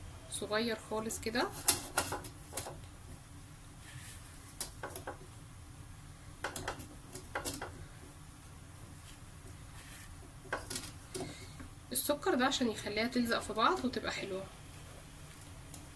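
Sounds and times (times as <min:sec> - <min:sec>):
hands rustling dry dough: 0:02.5 - 0:04.9, 0:06.8 - 0:11.6.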